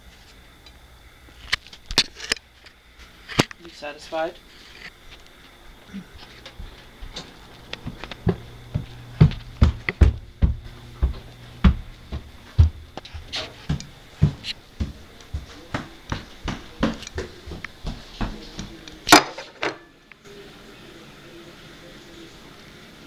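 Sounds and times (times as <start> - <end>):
faint low hum: 0.0 - 23.0
footsteps: 1.3 - 19.6.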